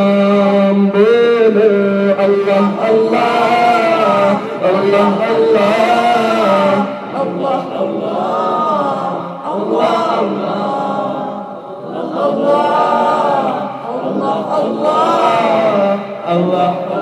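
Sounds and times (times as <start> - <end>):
man singing unaccompanied: 0.0 - 8.1, 14.2 - 17.0.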